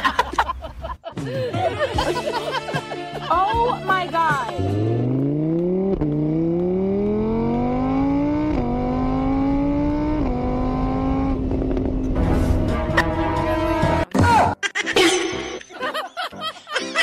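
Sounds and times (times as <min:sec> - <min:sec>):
vehicle engine accelerating: 0:04.4 - 0:14.0.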